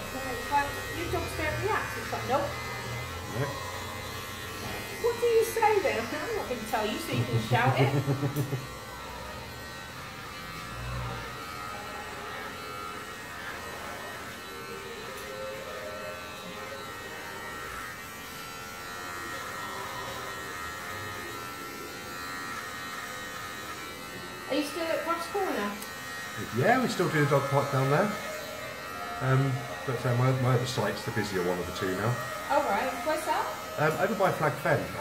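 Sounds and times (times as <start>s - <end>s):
electric hair clippers buzzing: 0.0s - 35.0s.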